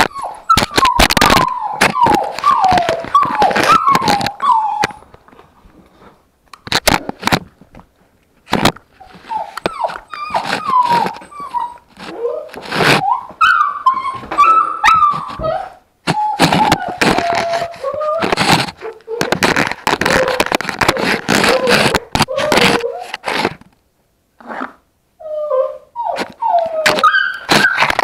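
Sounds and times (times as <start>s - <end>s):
puppies whimpering and yipping: 0.0s - 5.0s, 9.0s - 23.2s, 25.2s - 28.0s
knocks and scrapes against camera: 0.0s - 23.8s, 26.2s - 28.0s.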